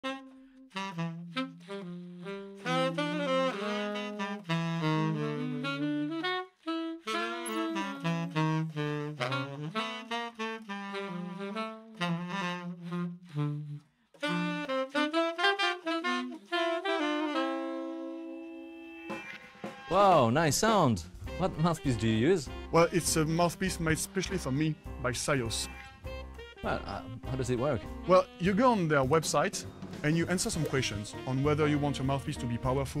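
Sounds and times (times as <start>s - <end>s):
saxophones playing jazz duet: 0.0s - 19.3s, 21.2s - 33.0s.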